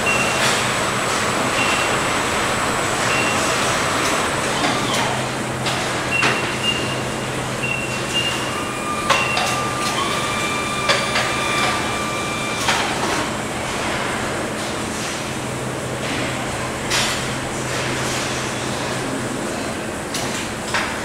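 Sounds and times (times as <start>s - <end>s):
high electronic tones: 7.6s - 13.3s.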